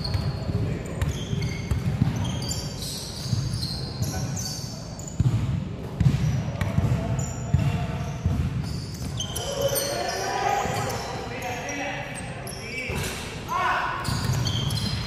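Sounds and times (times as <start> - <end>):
basketball bouncing on floor: 0.0 - 2.4, 5.2 - 9.2
sneakers squeaking: 0.0 - 15.0.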